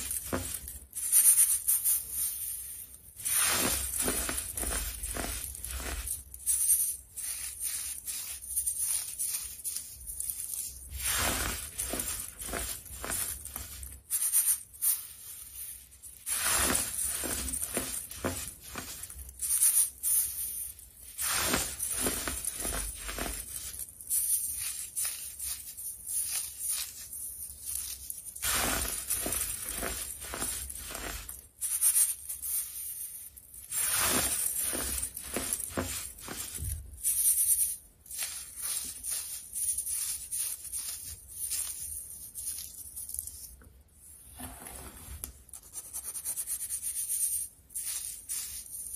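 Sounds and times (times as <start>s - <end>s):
baking soda crunching and crumbling: 0.0s - 43.6s.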